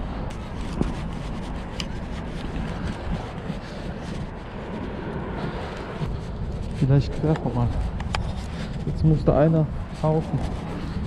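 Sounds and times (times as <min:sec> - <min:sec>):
low outdoor rumble: 0:00.0 - 0:11.0
wind buffeting microphone: 0:00.0 - 0:11.0.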